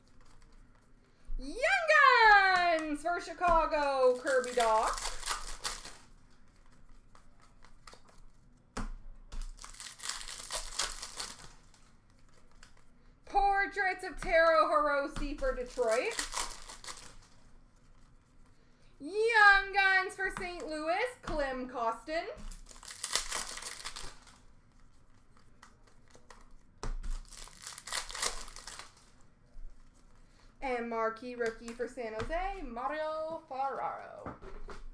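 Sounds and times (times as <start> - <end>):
foil wrapper crinkling: 1.9 - 8.6, 9.4 - 12.9, 15.4 - 18.2, 22.4 - 30.0.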